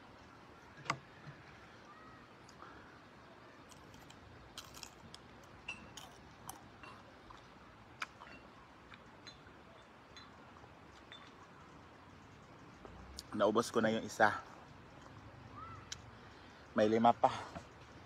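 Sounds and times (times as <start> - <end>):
peppers crunching while eaten: 3.6 - 7.4.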